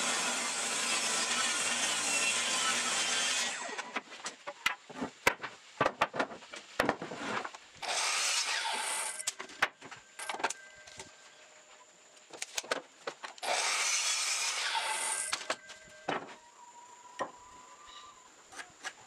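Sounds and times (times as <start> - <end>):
miter saw cutting: 0.0 - 3.9, 7.8 - 9.3, 13.4 - 15.7
boards knocking together: 3.8 - 7.6, 15.3 - 16.4.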